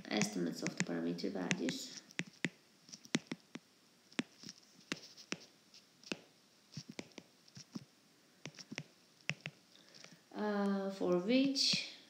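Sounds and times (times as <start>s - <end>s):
pen scratching on paper: 0.0s - 3.6s, 4.2s - 7.8s, 8.5s - 10.1s.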